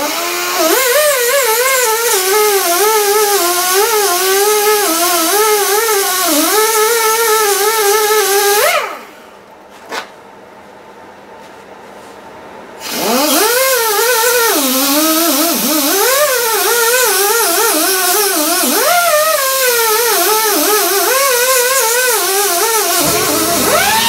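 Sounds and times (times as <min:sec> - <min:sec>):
die grinder whining on metal: 0:12.9 - 0:24.0.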